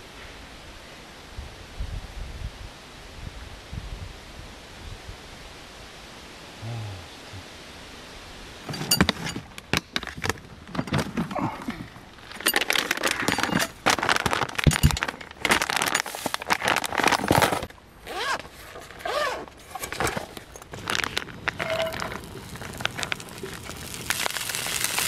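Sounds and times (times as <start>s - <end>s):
objects clattering and clinking: 8.7s - 17.8s, 18.4s - 24.3s.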